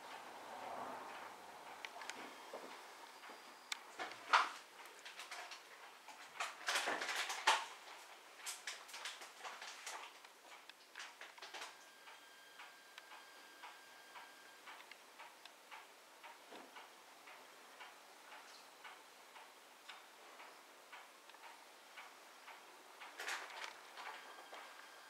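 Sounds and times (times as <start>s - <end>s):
faint regular ticking: 7.8s - 25.0s.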